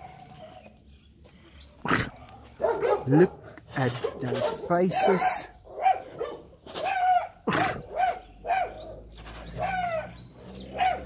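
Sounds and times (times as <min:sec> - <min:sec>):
small dog barking: 0:02.6 - 0:03.4, 0:04.0 - 0:08.8, 0:10.7 - 0:11.0.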